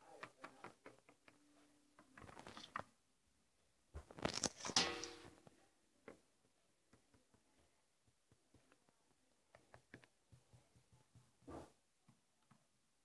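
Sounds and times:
plastic toys clicking and tapping: 0.0s - 2.9s, 6.0s - 11.4s.

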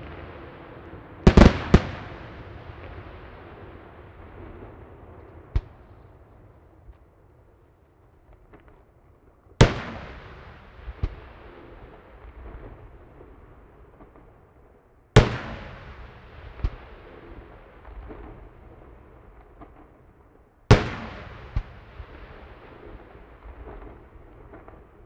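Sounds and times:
firework bangs echoing: 1.2s - 4.4s, 9.6s - 11.6s, 15.2s - 17.2s, 20.7s - 24.8s.

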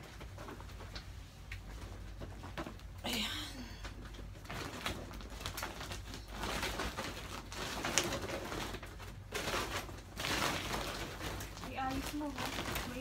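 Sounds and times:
plastic bag rustling: 3.6s - 13.0s.

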